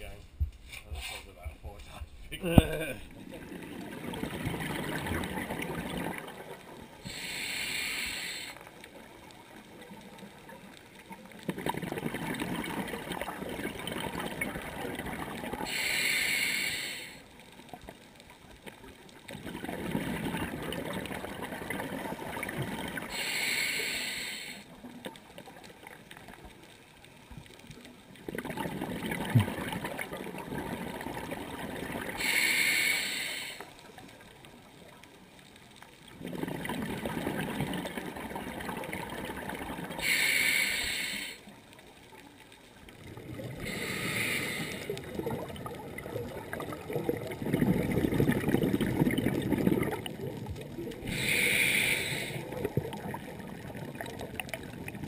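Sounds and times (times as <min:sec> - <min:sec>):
regulator hissing inhale: 0:07.0 - 0:08.7, 0:15.7 - 0:17.3, 0:23.1 - 0:24.7, 0:32.2 - 0:33.8, 0:40.0 - 0:41.5, 0:43.6 - 0:45.0, 0:51.0 - 0:52.6
diver exhaling bubbles: 0:19.3 - 0:23.4, 0:28.3 - 0:33.5, 0:36.2 - 0:41.4, 0:43.0 - 0:55.0.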